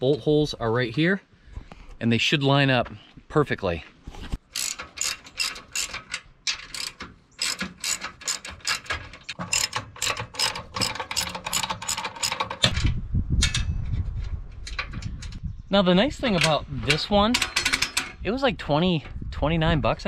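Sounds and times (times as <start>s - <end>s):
ratchet wrench clicking: 4.5s - 12.7s.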